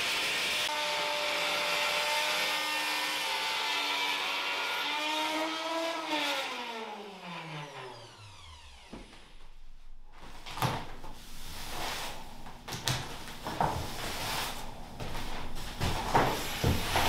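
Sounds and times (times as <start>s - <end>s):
electric router whine winding down: 5.0s - 9.6s
push broom sweeping sawdust: 13.8s - 17.0s.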